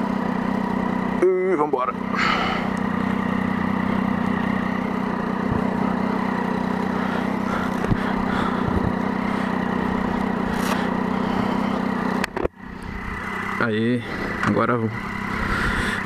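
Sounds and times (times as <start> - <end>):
motorcycle engine idling: 0.0 - 16.0.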